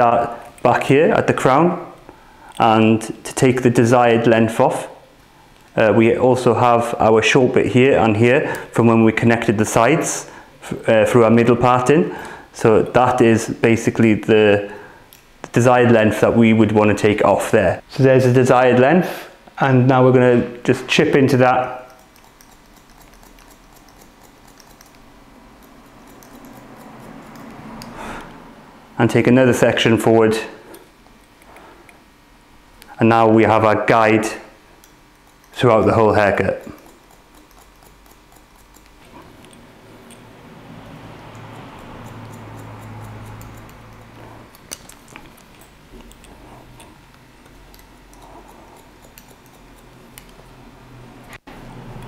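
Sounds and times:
scissors snipping hair: 21.6 - 28.4, 34.8 - 50.6.

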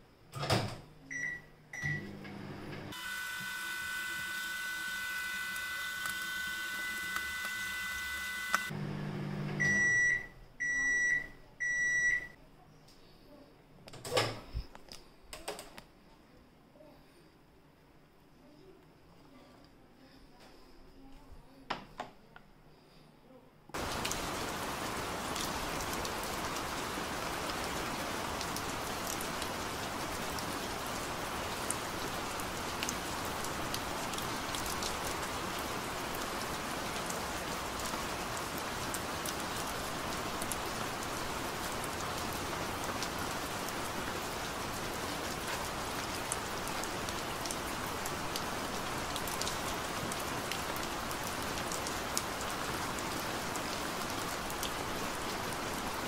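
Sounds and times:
steady rain falling: 23.8 - 56.0.

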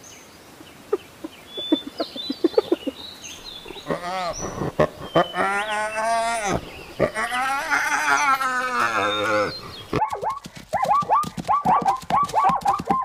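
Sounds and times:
wild dogs whining calls: 3.5 - 10.2
zebras barking: 3.6 - 13.0.

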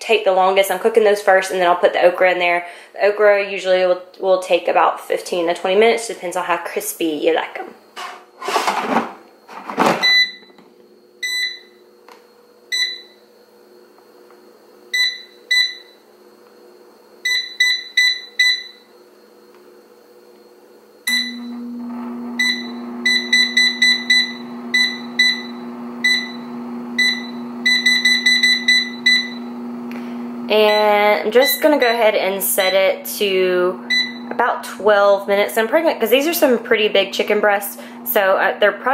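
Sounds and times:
fan humming: 0.0 - 18.4, 20.7 - 38.9
basket sliding in with clunk: 8.0 - 10.2
air fryer beeping: 9.7 - 13.3, 14.8 - 16.1, 17.2 - 19.0, 21.0 - 38.9.

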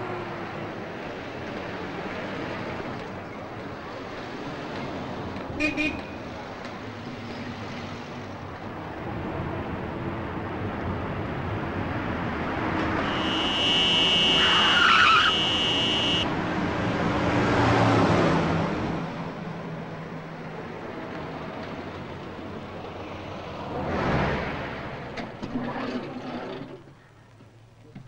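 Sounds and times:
passing vehicle: 0.0 - 25.4
minibus engine and road noise: 0.0 - 28.0
high-pitched steady tone: 13.0 - 16.3.

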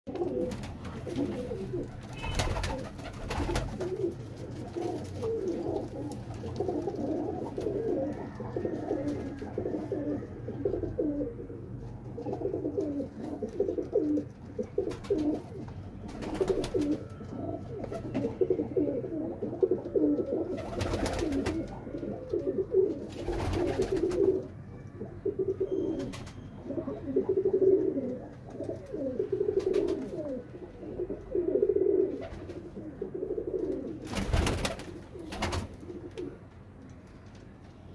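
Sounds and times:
pigeons cooing: 0.1 - 36.5.

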